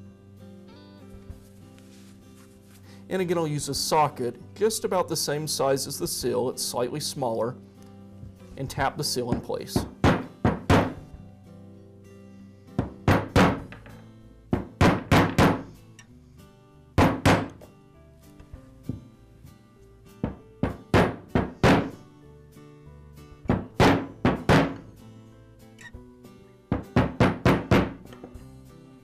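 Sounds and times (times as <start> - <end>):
background music: 0.0 - 29.0.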